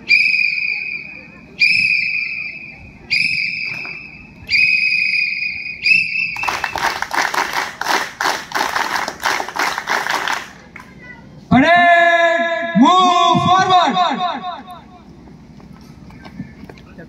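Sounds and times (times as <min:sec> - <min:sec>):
whistle blasts: 0:00.0 - 0:07.0
hand claps: 0:06.4 - 0:10.9.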